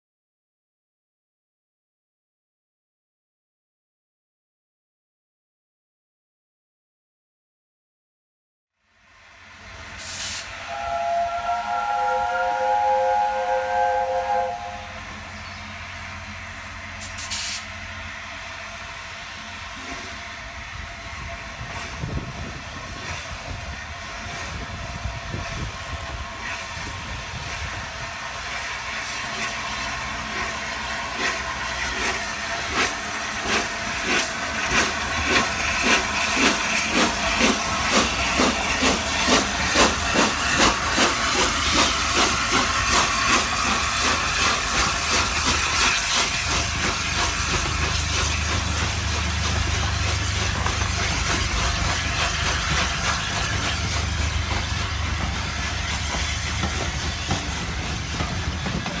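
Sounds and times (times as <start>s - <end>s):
steam locomotive chuffing: 9.3s - 59.0s
steam hissing: 9.8s - 59.0s
steam locomotive whistle: 10.0s - 15.2s.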